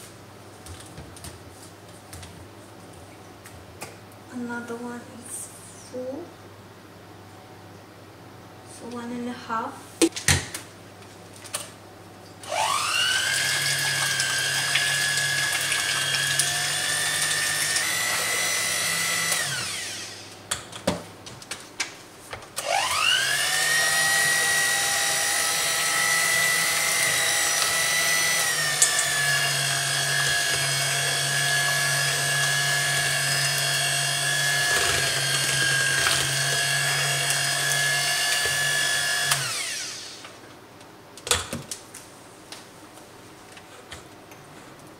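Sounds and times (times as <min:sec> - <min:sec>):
electric mixer motor whining: 0:12.4 - 0:20.3, 0:22.6 - 0:40.4.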